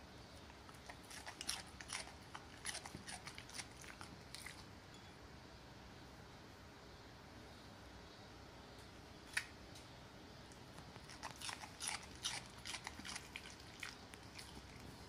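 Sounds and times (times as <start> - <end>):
dog crunching cucumber: 0.4 - 4.7, 10.5 - 15.0.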